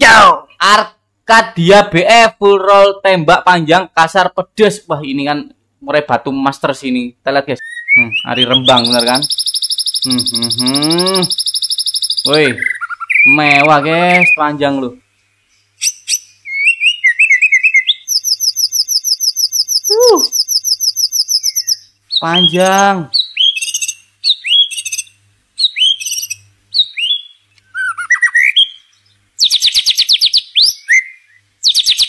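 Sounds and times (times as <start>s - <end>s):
songbird whistling and trilling: 7.6s - 14.4s, 15.8s - 32.0s.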